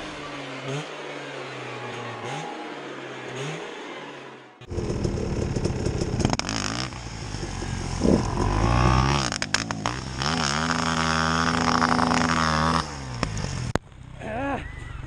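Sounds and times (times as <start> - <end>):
motorcycle engine revving: 0.0 - 14.3.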